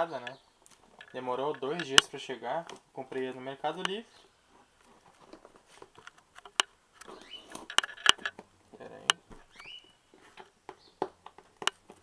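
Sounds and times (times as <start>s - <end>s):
sharp clicks and knocks: 5.2s - 9.5s, 10.3s - 12.0s.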